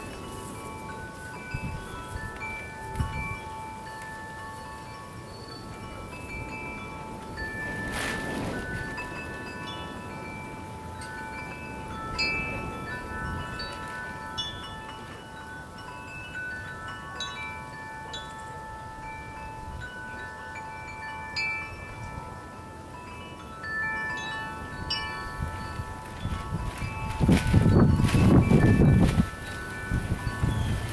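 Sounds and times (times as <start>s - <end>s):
metal wind chimes ringing: 0.0s - 30.9s
wind rumble on microphone: 0.0s - 30.9s.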